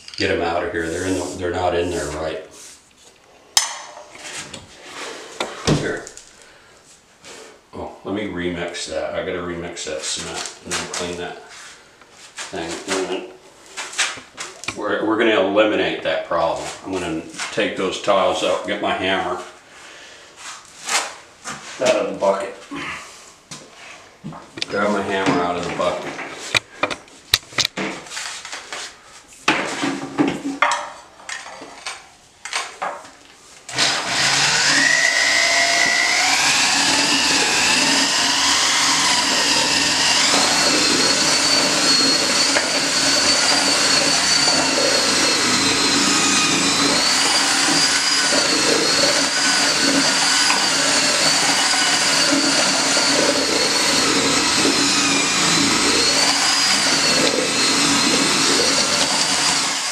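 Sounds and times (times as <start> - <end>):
electric drill mixing mortar: 33.6 - 59.9.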